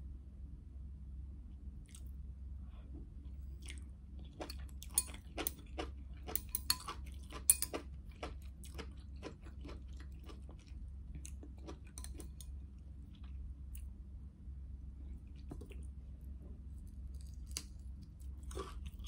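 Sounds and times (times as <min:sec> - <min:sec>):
steady low hum: 0:00.0 - 0:19.0
wet chewing and mouth smacking: 0:03.5 - 0:13.9
chopsticks clinking on glass bowl: 0:04.8 - 0:05.6, 0:06.3 - 0:07.8, 0:11.9 - 0:12.5.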